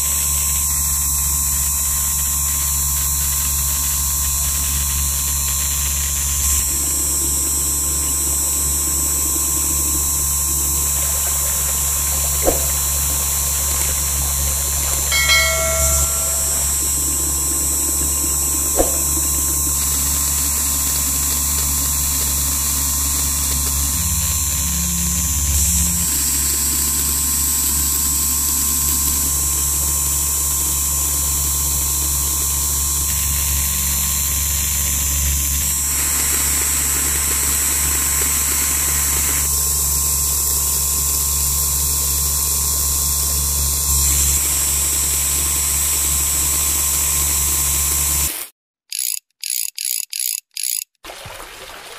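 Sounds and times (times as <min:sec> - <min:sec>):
click: 0:48.9 - 0:51.0.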